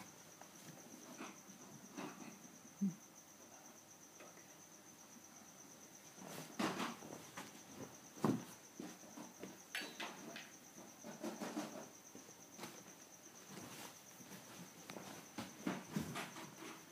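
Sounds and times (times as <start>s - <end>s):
guinea pigs scampering on carpet: 11.0s - 16.9s.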